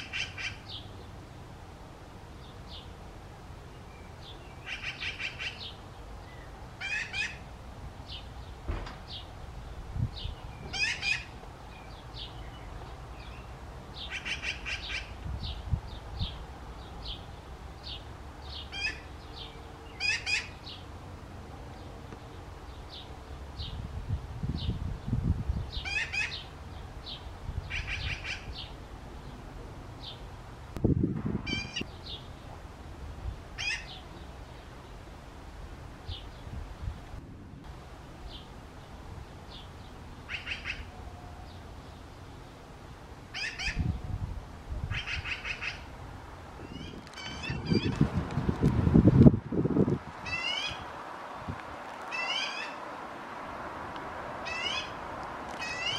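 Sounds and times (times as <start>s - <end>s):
magpie chick raspy calls: 0.0s - 0.7s, 4.6s - 5.7s, 6.8s - 7.4s, 10.7s - 11.3s, 14.0s - 15.2s, 18.7s - 19.1s, 20.0s - 20.6s, 25.8s - 26.5s, 27.7s - 28.7s, 33.6s - 34.0s, 40.3s - 40.9s, 43.3s - 43.9s, 44.9s - 45.9s, 46.6s - 47.9s, 50.3s - 50.8s, 52.1s - 52.8s, 54.4s - 55.0s, 55.6s - 55.9s.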